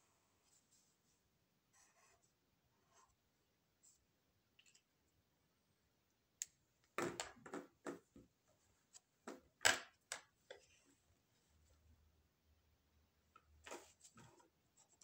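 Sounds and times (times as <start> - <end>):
tools clicking and knocking on table: 9.3 - 10.6.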